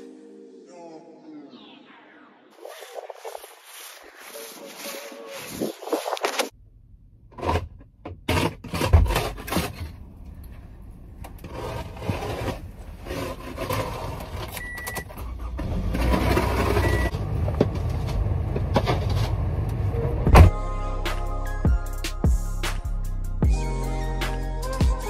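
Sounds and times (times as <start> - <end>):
short high car beeps: 16.8 - 17.1.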